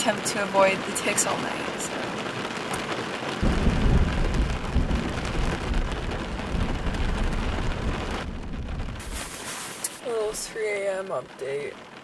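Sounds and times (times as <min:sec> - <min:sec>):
heavy rain drumming on car roof: 0:00.0 - 0:12.0
low roll of thunder: 0:03.4 - 0:09.6.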